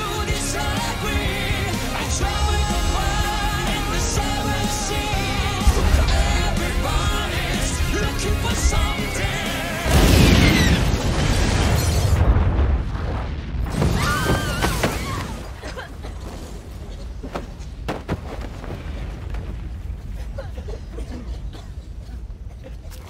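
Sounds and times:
explosion boom: 0:09.9 - 0:15.4.

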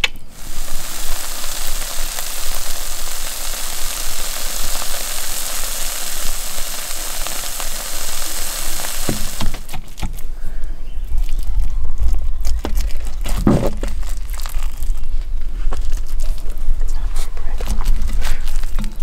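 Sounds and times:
sizzling hiss: 0:00.0 - 0:10.0
faint crackles: 0:00.0 - 0:19.0.

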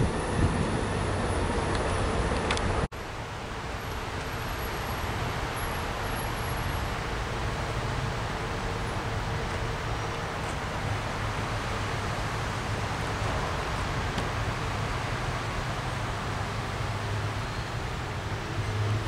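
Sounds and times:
distant traffic rumble: 0:00.0 - 0:19.0.

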